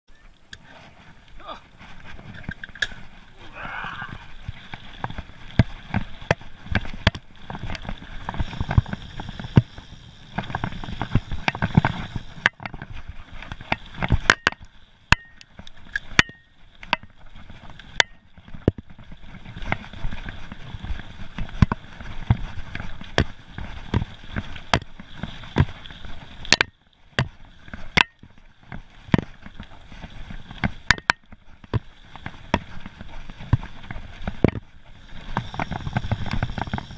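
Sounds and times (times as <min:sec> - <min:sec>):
bike tyres rumbling on gravel: 0:00.6 - 0:36.9
bike knocking and rattling: 0:04.6 - 0:36.9.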